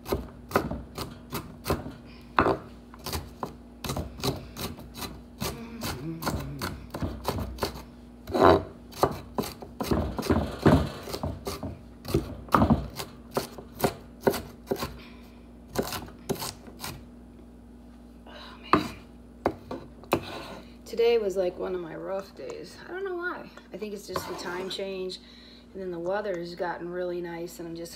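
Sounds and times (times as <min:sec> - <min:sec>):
knife chopping on wooden board: 0:00.0 - 0:15.0.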